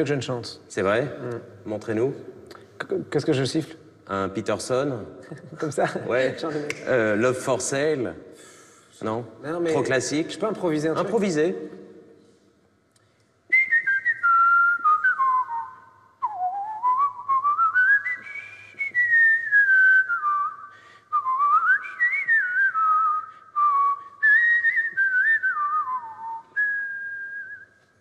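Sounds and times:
man whistling a jazz melody: 13.5s - 28.0s.

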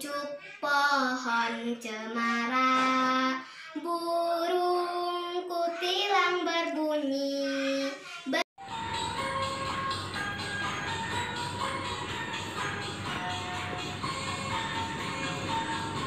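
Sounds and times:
child singing: 0.0s - 8.4s
musical accompaniment: 8.6s - 16.0s.

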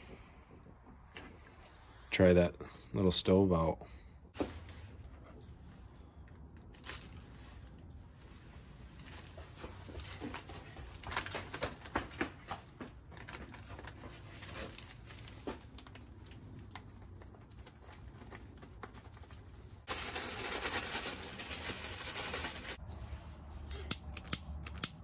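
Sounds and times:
plastic and paper crinkling: 6.2s - 22.8s.

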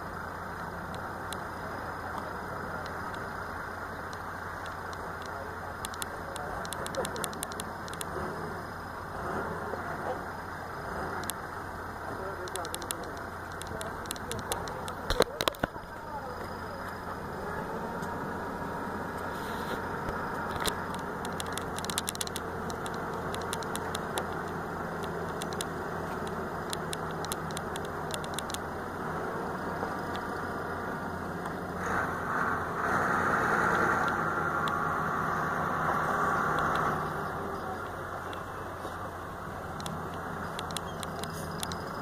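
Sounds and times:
truck engine running: 0.0s - 42.0s
light clicks: 4.0s - 8.2s, 12.3s - 17.0s, 19.2s - 28.7s, 39.7s - 42.0s.

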